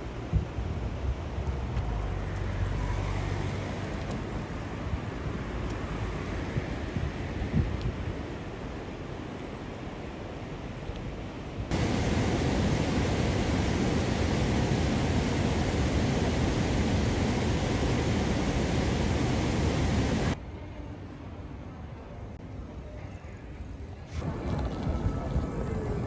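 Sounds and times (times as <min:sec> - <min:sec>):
river water pouring over weir: 0:11.7 - 0:20.4.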